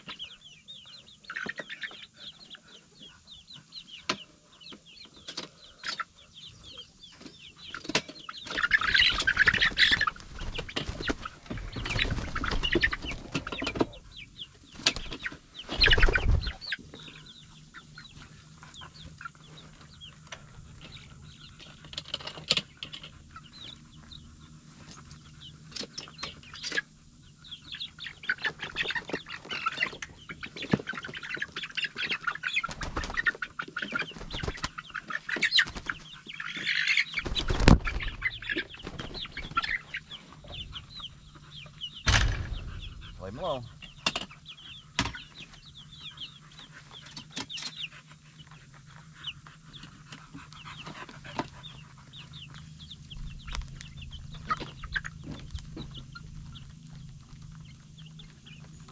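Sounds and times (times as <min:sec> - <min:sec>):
chicks peeping and clucking: 0:00.0 - 0:58.9
wings flapping and rustling: 0:07.8 - 0:14.0, 0:14.6 - 0:16.8, 0:28.6 - 0:40.8.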